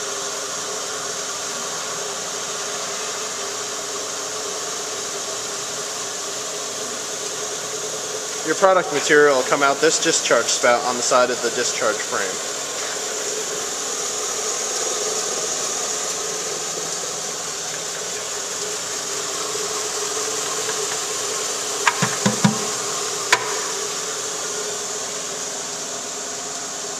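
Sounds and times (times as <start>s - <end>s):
vibratory separator humming: 4.4s - 26.9s
knocks: 21.9s - 22.7s.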